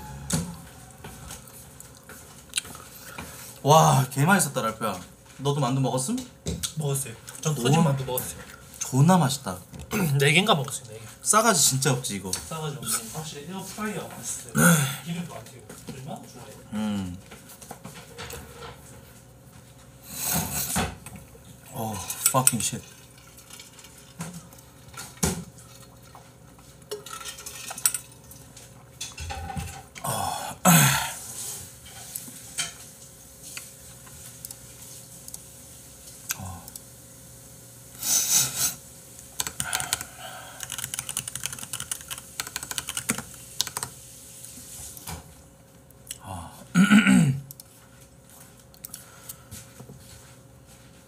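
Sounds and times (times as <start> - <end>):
keyboard typing: 39.4 - 43.9.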